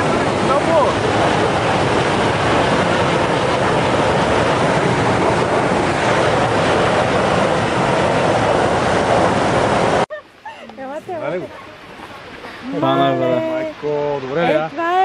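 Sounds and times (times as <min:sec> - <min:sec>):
water jet rushing: 0:00.0 - 0:10.1.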